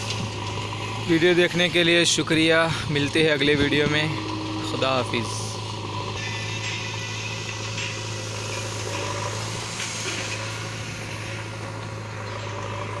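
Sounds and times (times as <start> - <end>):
diesel engine running: 0.0 - 13.0.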